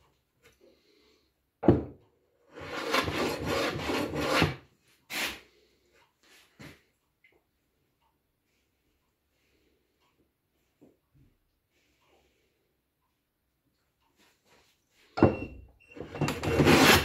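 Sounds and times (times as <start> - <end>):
plane scraping wood: 2.5 - 5.4, 16.0 - 17.0.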